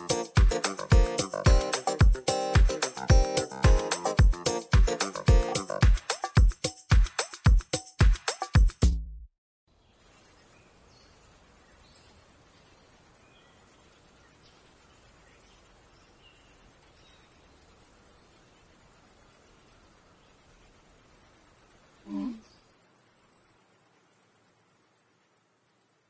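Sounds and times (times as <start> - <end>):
music: 0.0 - 9.3
cricket chirping trill: 9.9 - 26.0.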